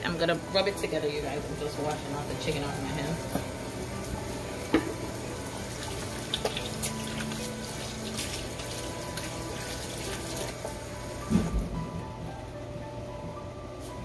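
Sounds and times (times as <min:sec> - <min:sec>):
faucet running into steel sink: 0:04.7 - 0:11.0.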